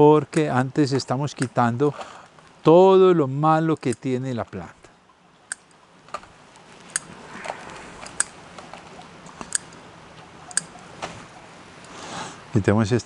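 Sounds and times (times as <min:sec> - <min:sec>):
rustle of roots and bark: 0:06.0 - 0:12.4.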